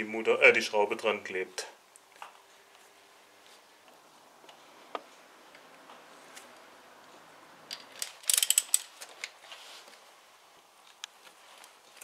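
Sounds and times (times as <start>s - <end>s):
ratchet wrench clicking: 7.7s - 8.9s.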